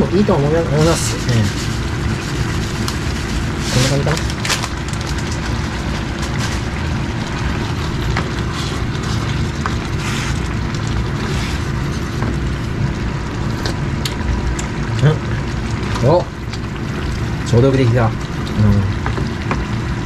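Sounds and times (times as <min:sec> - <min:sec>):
kitchen fan humming: 0:00.0 - 0:20.0
ladle scraping in a pan: 0:05.3 - 0:12.8.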